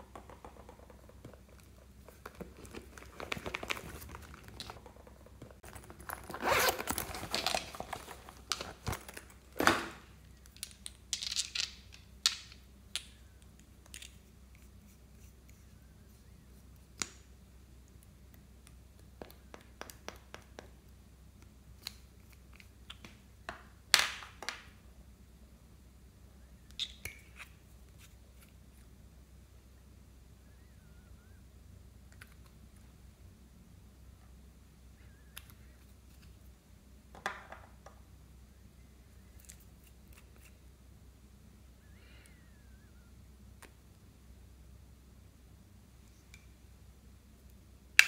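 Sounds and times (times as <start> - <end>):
packaging crinkling and rustling: 2.1 - 9.8.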